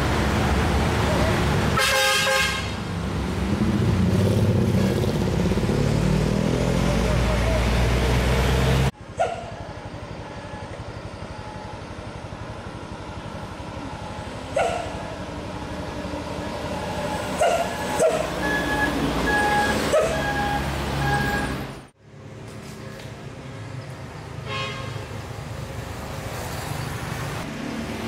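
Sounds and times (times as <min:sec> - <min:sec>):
truck passing by: 0:00.0 - 0:28.0
truck engine climbing: 0:02.9 - 0:24.2.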